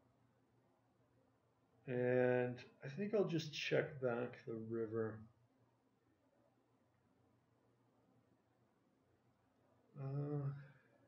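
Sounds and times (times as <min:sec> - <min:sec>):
man humming: 0:10.0 - 0:10.7.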